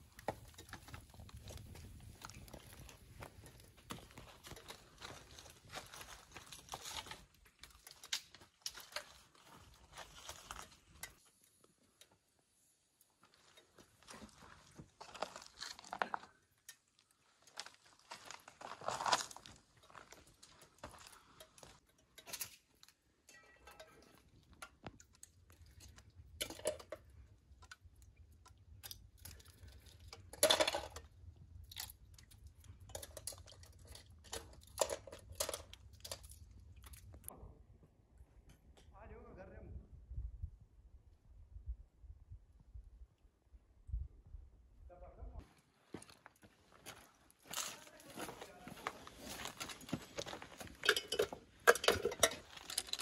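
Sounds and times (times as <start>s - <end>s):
ice crunching and knocking: 0.0s - 11.2s, 46.8s - 53.0s.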